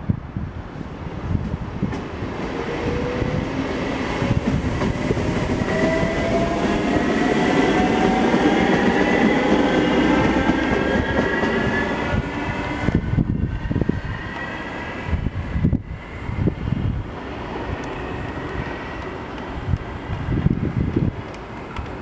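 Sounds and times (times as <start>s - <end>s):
wheels rumbling on rails: 0.1s - 22.0s
electric train whine rising: 2.3s - 19.4s.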